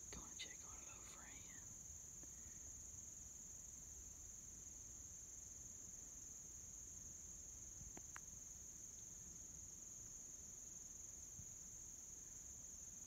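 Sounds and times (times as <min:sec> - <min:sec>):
insects chorus: 0:00.0 - 0:13.0
faint clicks: 0:07.9 - 0:08.3.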